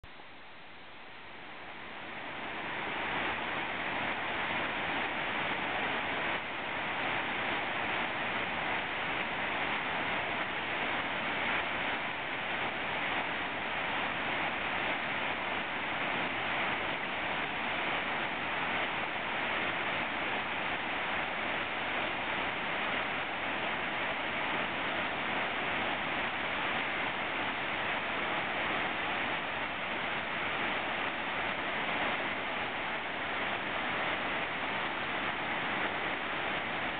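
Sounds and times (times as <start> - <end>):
white water rushing: 0.0 - 36.9.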